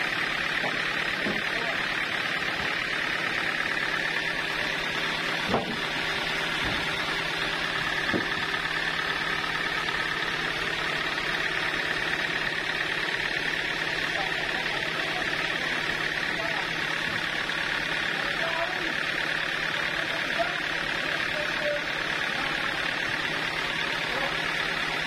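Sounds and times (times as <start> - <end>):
sawmill machinery humming: 0.0 - 25.0
short knocks: 5.4 - 5.8, 8.0 - 8.4.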